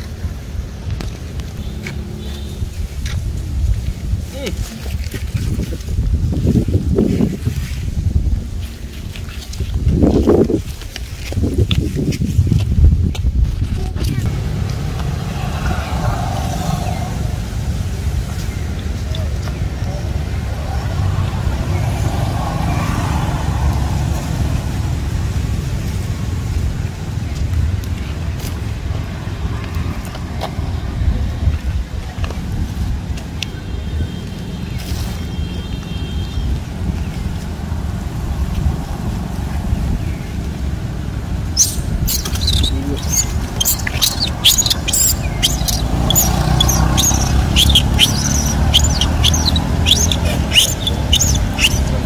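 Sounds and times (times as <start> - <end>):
low outdoor rumble: 12.4 - 33.4
baby monkey squealing: 41.6 - 52.0.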